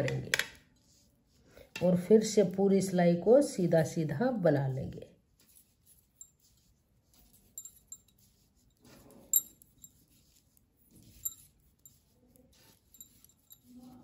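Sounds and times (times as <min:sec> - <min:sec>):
wool rustling: 0:05.3 - 0:14.0.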